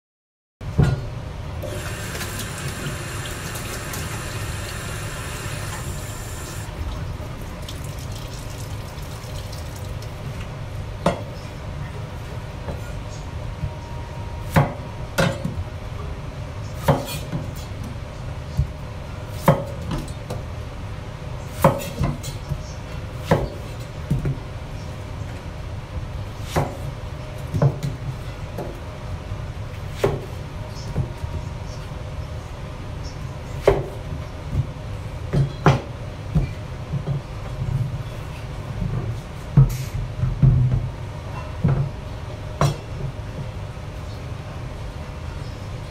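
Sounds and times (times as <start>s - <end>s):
steady low hum: 0.8s - 7.6s.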